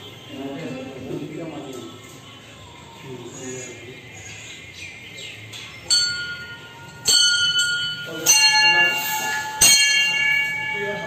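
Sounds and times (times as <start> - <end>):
temple bell ringing: 5.9 - 11.0.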